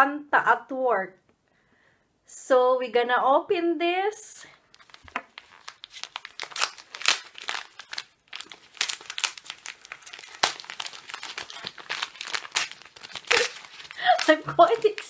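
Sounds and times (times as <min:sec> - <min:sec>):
gift wrap crinkling and tearing: 0:04.6 - 0:15.0.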